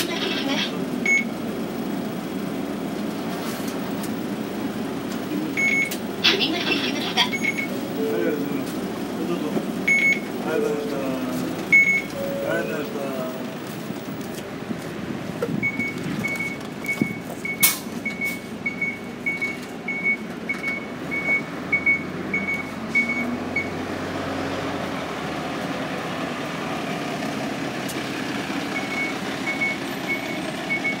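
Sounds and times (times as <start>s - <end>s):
bus warning beeper: 0.0s - 1.5s, 5.4s - 13.9s, 15.6s - 23.8s, 28.7s - 31.0s
idling engine hum: 0.0s - 31.0s.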